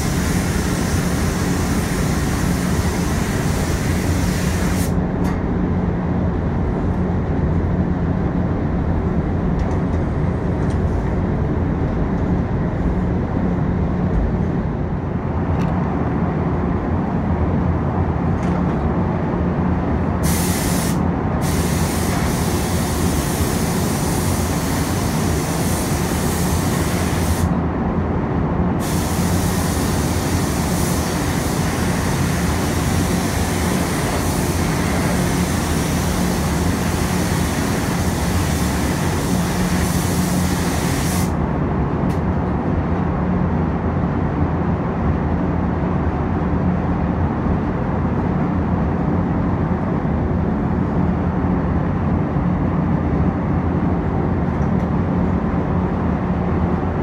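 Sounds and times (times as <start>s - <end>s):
paint spray gun hissing: 0.0s - 5.0s, 20.2s - 27.5s, 28.8s - 41.3s
ventilation humming: 0.0s - 57.0s.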